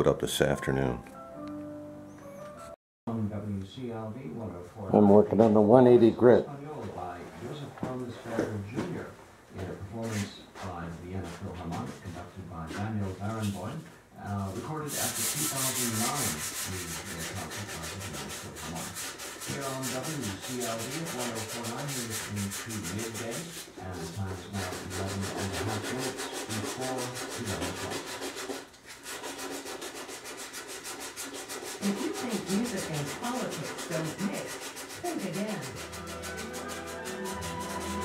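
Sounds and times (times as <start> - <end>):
sandpaper rubbing on wood: 14.8 - 38.0.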